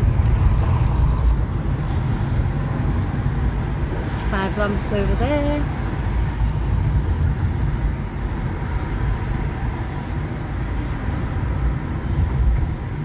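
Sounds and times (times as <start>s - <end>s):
car cabin road rumble: 0.0s - 13.0s.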